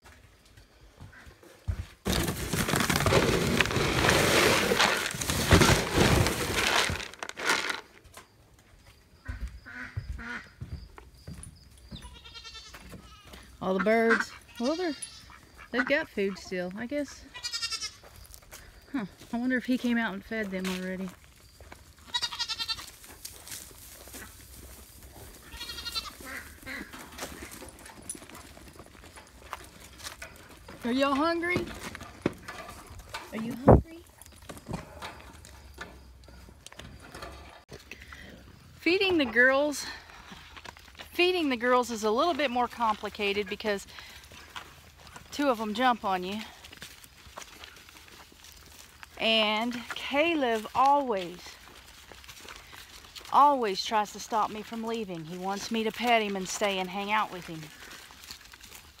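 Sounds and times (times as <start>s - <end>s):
feed sack rustling and crinkling: 2.0s - 8.0s
goats bleating: 12.0s - 13.5s, 17.2s - 18.0s, 22.0s - 22.9s, 25.4s - 26.9s
footsteps crunching on dry leaves: 17.4s - 27.8s, 43.8s - 59.0s.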